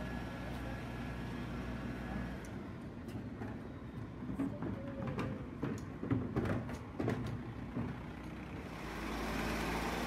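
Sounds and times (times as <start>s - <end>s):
garbage truck engine passing: 7.4s - 10.0s.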